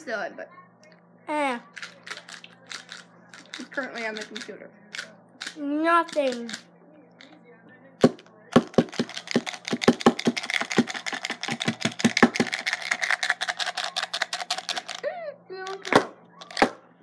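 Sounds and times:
rapid irregular clicks and taps: 8.0 - 15.0.

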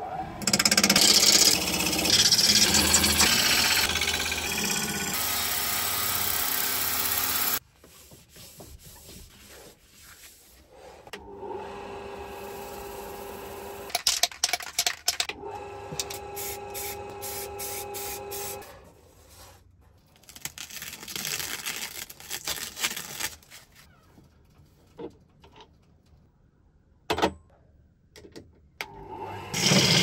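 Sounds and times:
lathe humming: 0.4 - 7.6
lathe tool scraping wood: 0.4 - 7.6, 29.5 - 30.0.

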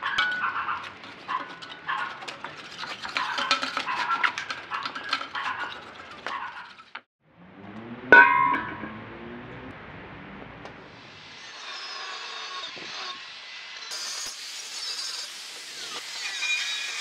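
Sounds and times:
metal tank clanging on tile: 0.0 - 7.0, 8.1 - 9.0.

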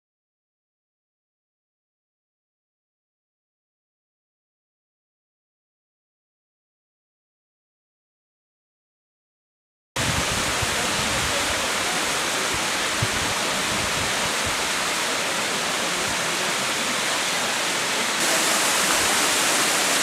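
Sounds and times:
waterfall rushing: 10.0 - 20.0.

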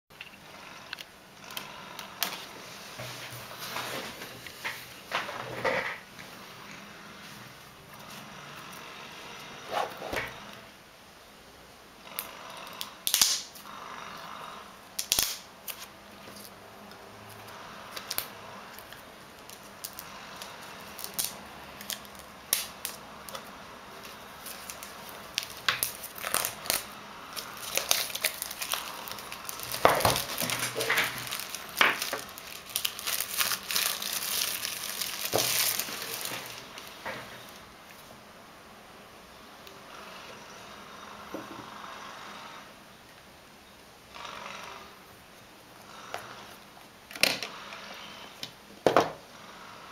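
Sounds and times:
plastic shrink-wrap crackling: 17.9 - 37.0.

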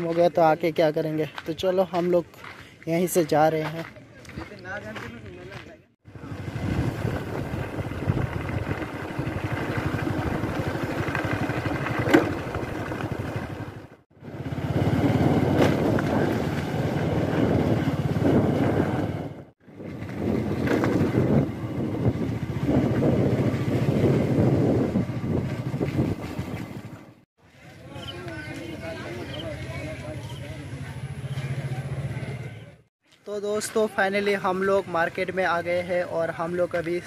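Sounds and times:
motorcycle engine running: 6.1 - 32.9.

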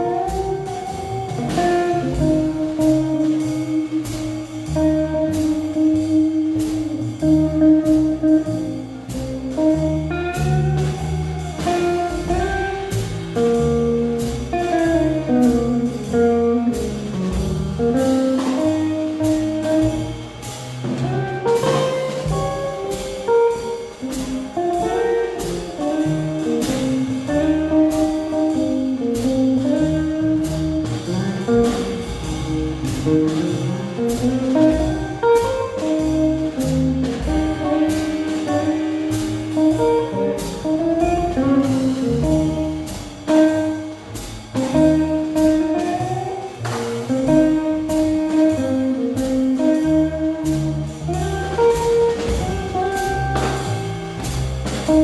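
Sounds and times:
drum kit with cymbals: 0.0 - 55.0
electric guitar: 0.0 - 55.0
upright bass: 0.0 - 55.0.

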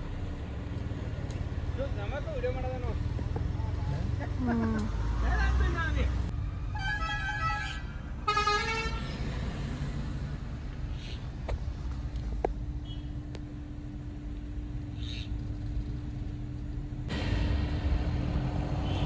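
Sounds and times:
rumble of cars: 0.0 - 19.0
vehicle horns honking: 6.7 - 9.2, 12.8 - 13.2, 18.7 - 19.0.

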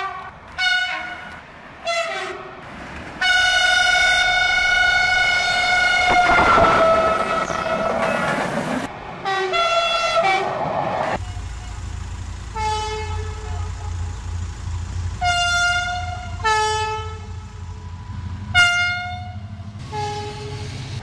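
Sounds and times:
train horn blasts: 3.2 - 8.0, 12.5 - 14.1, 15.2 - 17.5, 18.5 - 20.8
low rumble: 6.1 - 8.9.

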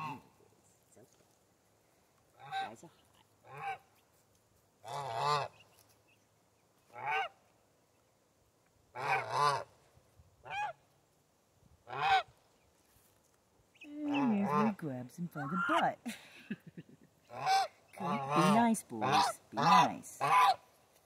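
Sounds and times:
geese honking: 0.0 - 0.3, 3.4 - 4.0, 4.8 - 5.7, 6.9 - 7.4, 8.9 - 9.8, 10.5 - 10.8, 11.9 - 12.4, 13.8 - 16.0, 17.3 - 20.7.

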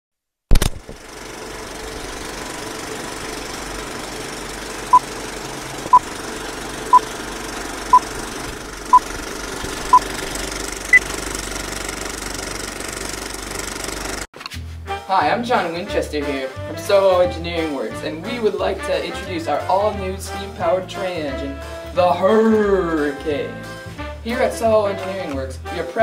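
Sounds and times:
film projector rattle: 0.6 - 14.3.

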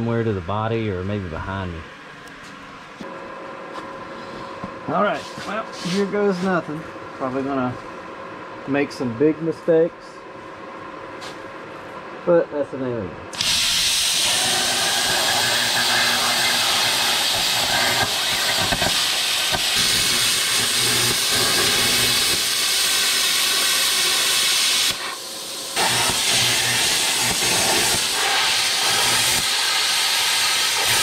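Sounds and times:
plasma cutter hissing: 13.3 - 31.0.

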